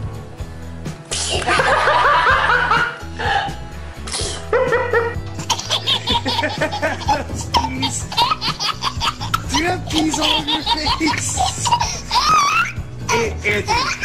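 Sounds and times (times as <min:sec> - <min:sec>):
background music: 0:00.0 - 0:14.0
people laughing: 0:01.4 - 0:03.5, 0:04.5 - 0:14.0
baby giggling: 0:04.8 - 0:14.0.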